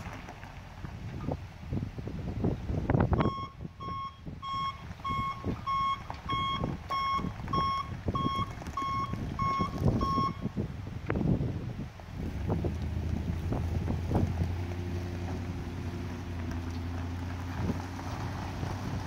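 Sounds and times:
truck reversing alarm beeping: 0:03.2 - 0:10.6.

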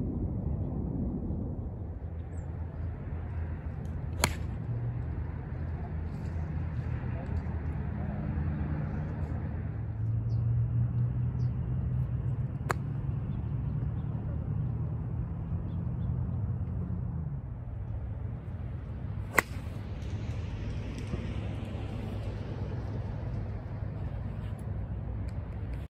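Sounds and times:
golf club striking ball: 0:04.2 - 0:04.5, 0:19.3 - 0:19.8.

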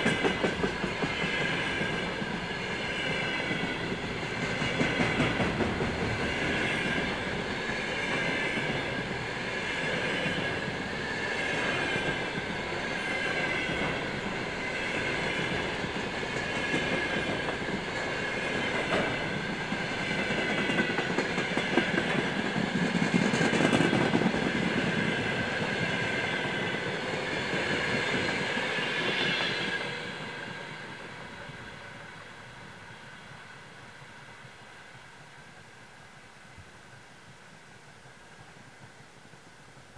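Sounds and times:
freight train rolling past: 0:00.0 - 0:35.8
high wheel squeal: 0:00.2 - 0:17.2.

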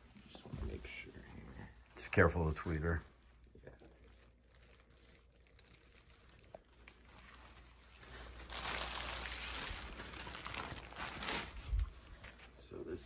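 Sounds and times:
plastic wrap crinkling: 0:02.1 - 0:12.6
cloth rustling: 0:04.0 - 0:12.6.

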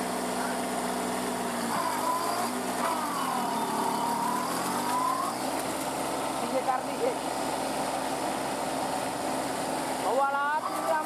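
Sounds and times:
tractor diesel engine revving: 0:00.0 - 0:11.0.

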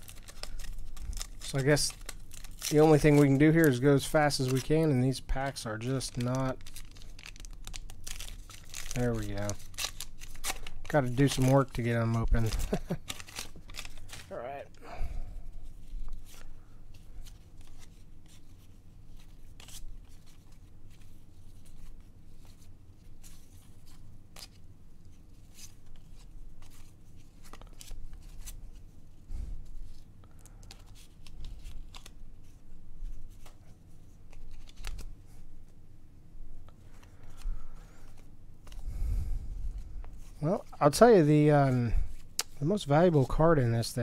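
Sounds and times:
cards flipped by hand: 0:30.6 - 0:32.6, 0:34.2 - 0:35.1, 0:36.6 - 0:38.8.

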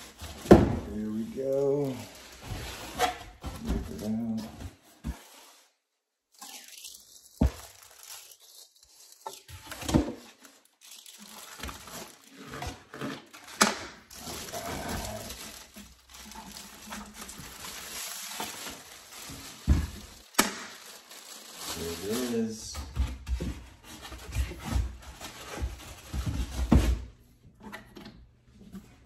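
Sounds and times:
plastic bag crinkling: 0:00.0 - 0:02.9, 0:06.3 - 0:22.8.

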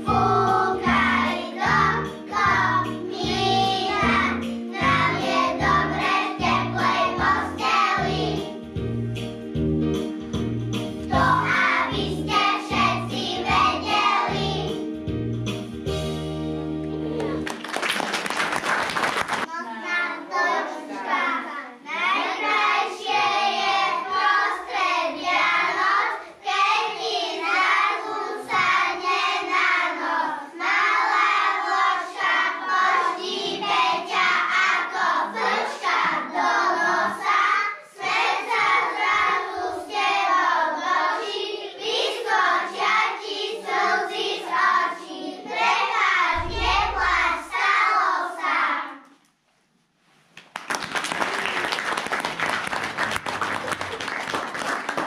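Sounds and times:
children singing: 0:00.0 - 0:08.6, 0:11.1 - 0:14.8, 0:20.0 - 0:49.0
applause: 0:17.2 - 0:19.5, 0:50.4 - 0:55.0.

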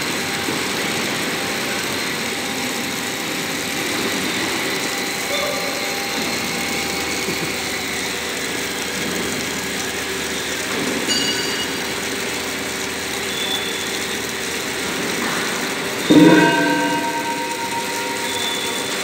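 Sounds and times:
faint steady tones: 0:16.1 - 0:19.0
machinery hum: 0:16.1 - 0:19.0.

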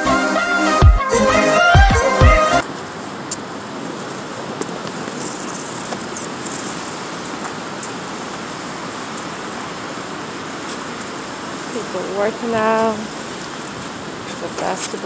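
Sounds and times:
background music: 0:00.0 - 0:02.6
outdoor background rush: 0:02.6 - 0:15.0.

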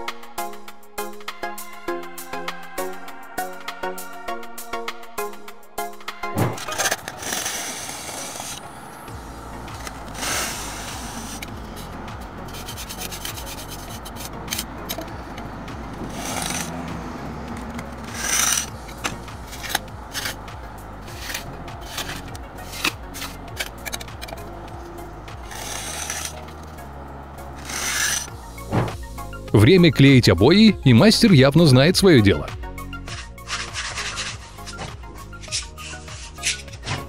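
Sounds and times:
trowel scraping through sand: 0:06.6 - 0:08.6, 0:09.4 - 0:15.2, 0:16.0 - 0:28.7, 0:33.1 - 0:37.0.

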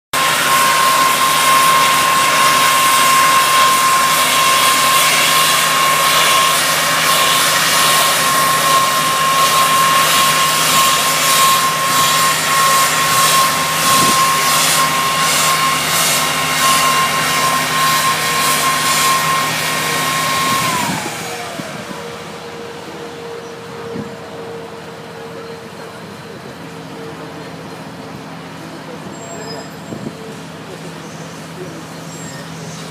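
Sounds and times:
truck engine running: 0:00.1 - 0:32.9
air nozzle blasting fluid: 0:00.2 - 0:21.2.

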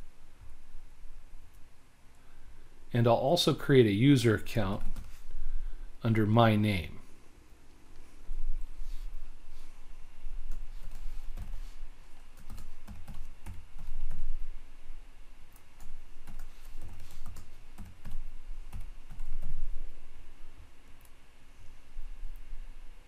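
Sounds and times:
typing on computer keyboard: 0:10.5 - 0:11.6, 0:12.4 - 0:14.2, 0:15.5 - 0:19.6.

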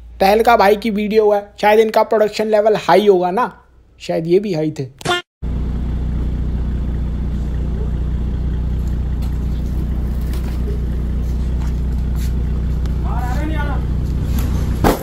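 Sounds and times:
car engine idling: 0:05.4 - 0:14.8.

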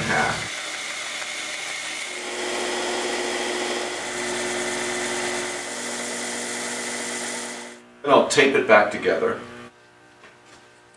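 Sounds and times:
band saw cutting wood: 0:00.0 - 0:07.8
belt sander running: 0:00.0 - 0:07.9.

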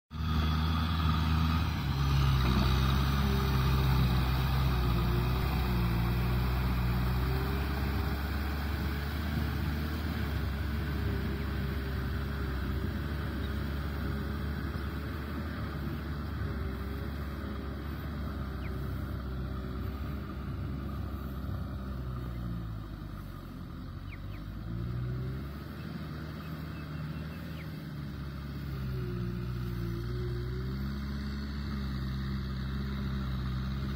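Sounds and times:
tractor diesel engine under load: 0:00.1 - 0:33.9.

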